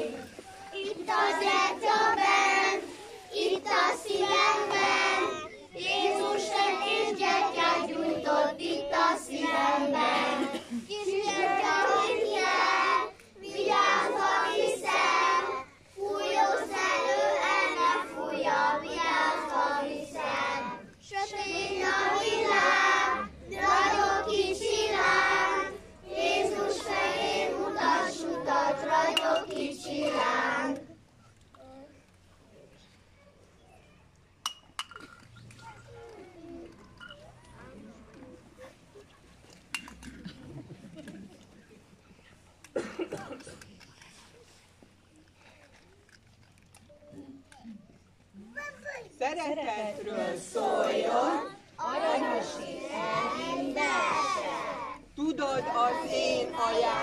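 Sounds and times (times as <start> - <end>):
children singing: 0.0 - 30.9, 50.0 - 57.0.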